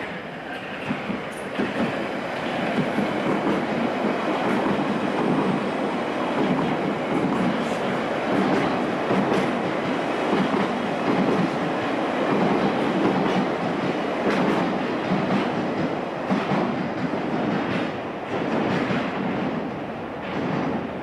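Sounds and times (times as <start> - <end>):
train rumble: 0.0 - 21.0.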